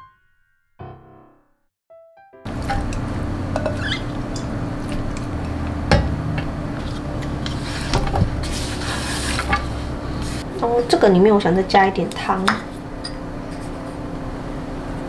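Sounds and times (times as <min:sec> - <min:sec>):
steady low hum: 0:02.5 - 0:15.0
tongs clacking on ceramic bowl: 0:02.7 - 0:05.7.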